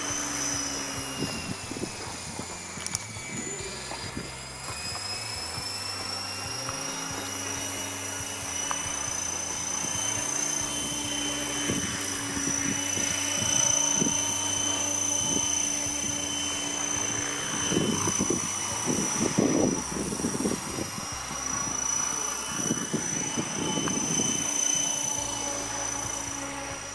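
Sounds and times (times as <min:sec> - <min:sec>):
model helicopter whine: 0:00.0 - 0:26.9.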